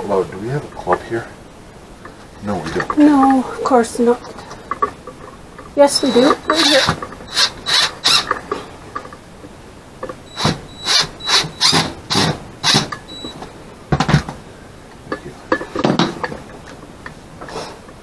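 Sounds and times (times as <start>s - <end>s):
cordless drill short bursts: 5.9s - 8.3s, 10.3s - 12.9s.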